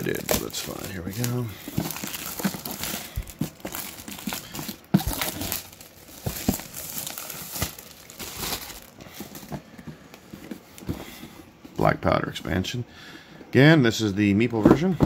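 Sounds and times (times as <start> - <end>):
wrapping crinkling and tearing: 0.0 - 9.5.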